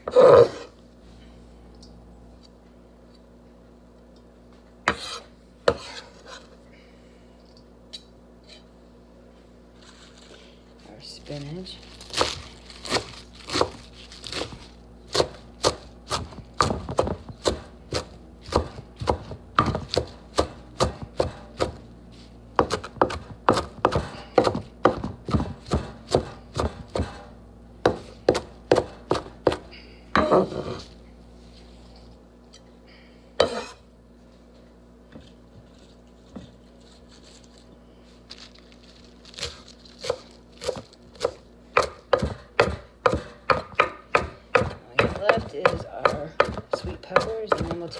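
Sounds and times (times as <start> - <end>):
knife chopping on wooden board: 4.9 - 6.0, 12.1 - 21.8, 22.6 - 27.2, 27.8 - 30.8, 40.0 - 47.9.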